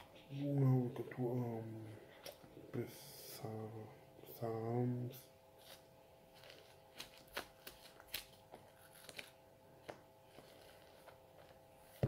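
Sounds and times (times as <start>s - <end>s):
faint steady hum: 0.0s - 12.0s
paper pages rustling: 5.6s - 12.0s.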